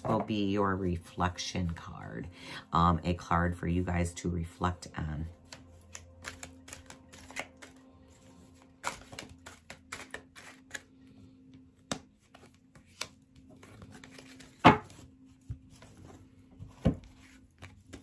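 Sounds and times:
cards being shuffled: 5.3s - 18.0s.

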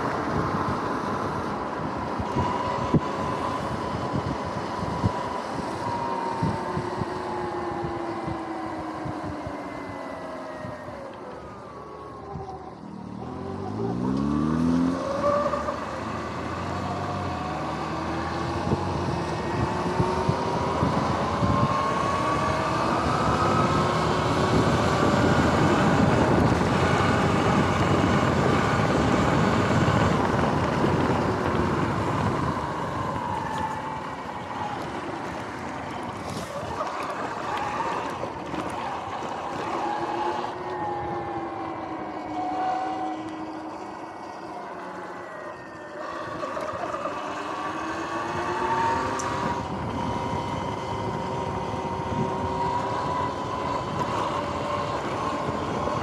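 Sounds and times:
wind rushing across microphone: 0.0s - 11.6s, 13.7s - 44.1s, 45.6s - 56.0s
electric motor whining: 34.6s - 56.0s.

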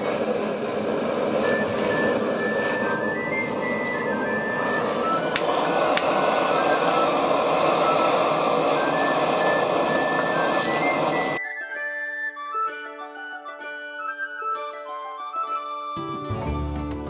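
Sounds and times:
gas torch burner hissing: 0.0s - 11.4s
flute music: 0.6s - 17.0s
sharp clicks: 5.1s - 7.3s.

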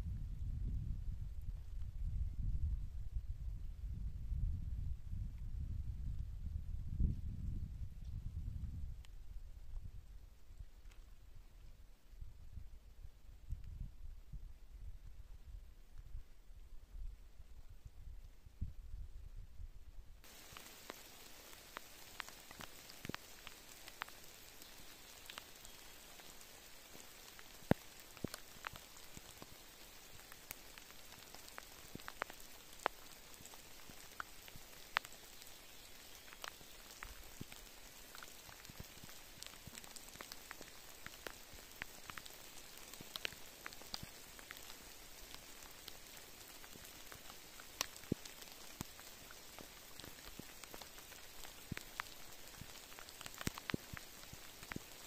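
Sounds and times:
rain falling on rock: 8.0s - 12.5s, 20.2s - 55.0s.

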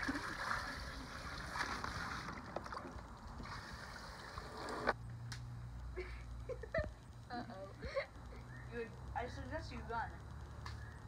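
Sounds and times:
water hissing from hose: 3.4s - 4.9s.

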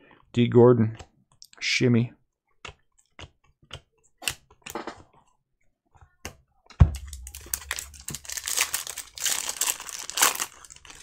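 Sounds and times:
thump: 6.8s - 7.6s
foil wrapper crinkling: 6.9s - 11.0s.

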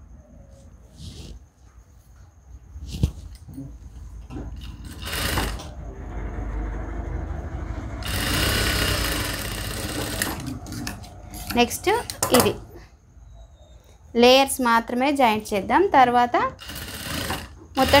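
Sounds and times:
sewing machine stitching: 4.6s - 5.8s, 8.0s - 12.6s, 16.6s - 18.0s.

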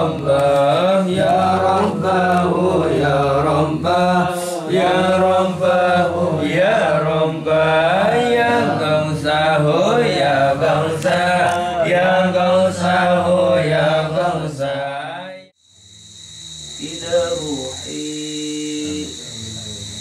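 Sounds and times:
men chanting together: 0.0s - 15.6s.

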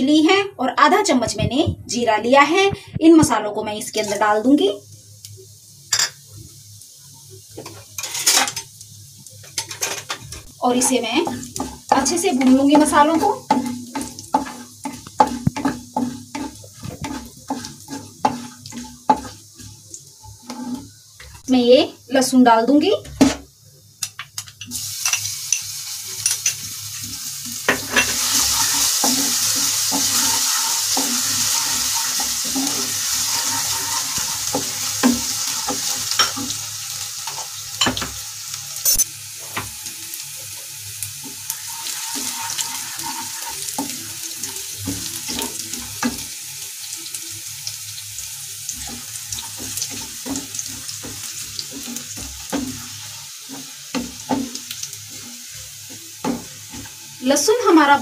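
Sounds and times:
garlic sizzling in hot oil: 0.1s - 58.0s
spatula tapping and scraping pan: 11.2s - 19.8s, 27.5s - 36.6s, 48.7s - 57.0s.

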